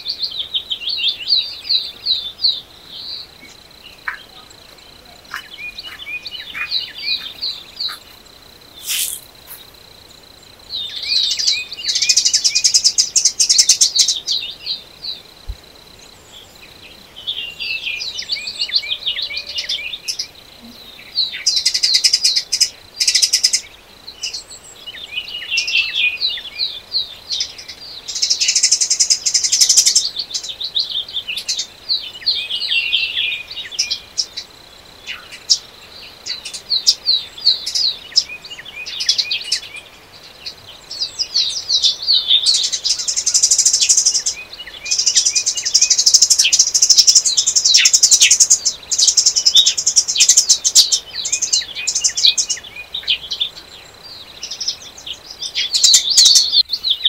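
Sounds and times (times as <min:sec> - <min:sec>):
songbirds singing: 0:00.0 - 0:57.0
high-pitched bird trills: 0:08.8 - 0:09.6.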